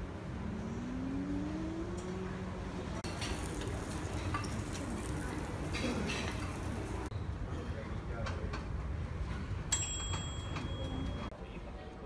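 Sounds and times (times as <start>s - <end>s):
dishes and utensils clinking: 3.0s - 7.1s
cooking station hum and hiss: 3.0s - 7.4s.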